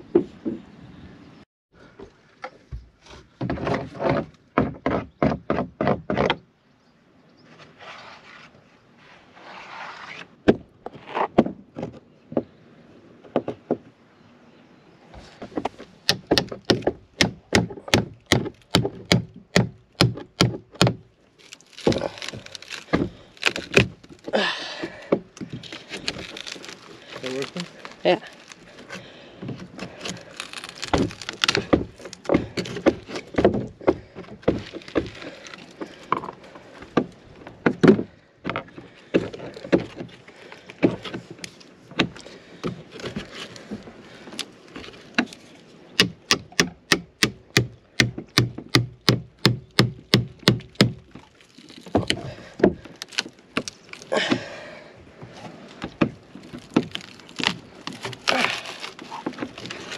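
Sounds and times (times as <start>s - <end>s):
chisel knocking into wooden planks: 16.1s - 21.0s.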